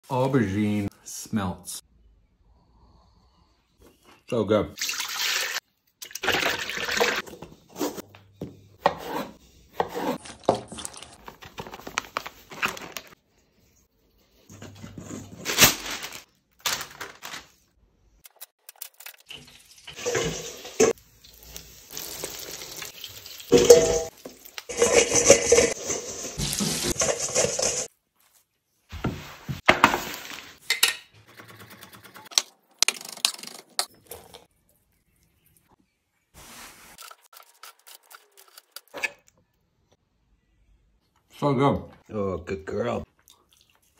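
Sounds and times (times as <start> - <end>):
oil sizzling in fryer: 19.3 - 27.8.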